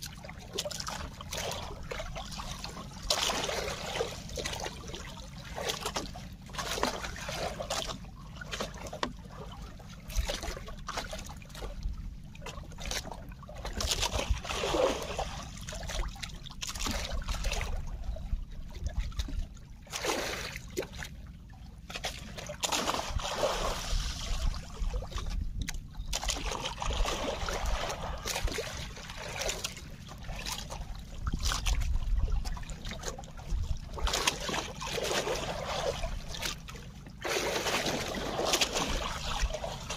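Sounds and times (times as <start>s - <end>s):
water splashing against boat hull: 0.0s - 39.9s
low rumble: 20.9s - 34.2s.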